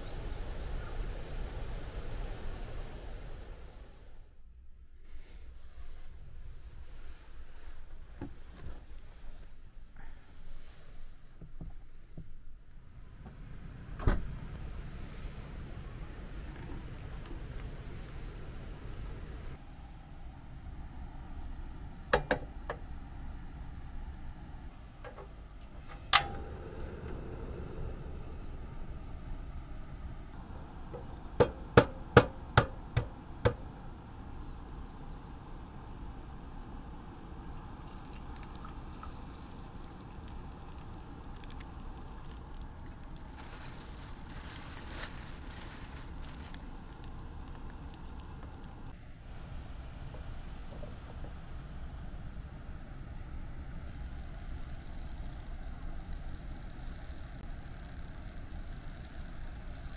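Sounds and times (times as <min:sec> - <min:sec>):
gas burner hissing: 0:25.6 - 0:30.4
gas stove igniter click: 0:25.9 - 0:26.5.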